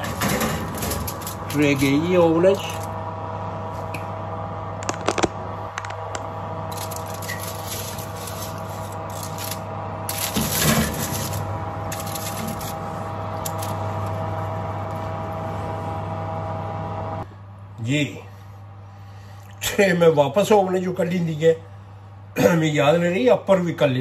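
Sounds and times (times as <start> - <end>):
baking tray scraping on oven rack: 0.0 - 2.9, 6.7 - 14.0
oven hum: 0.0 - 24.0.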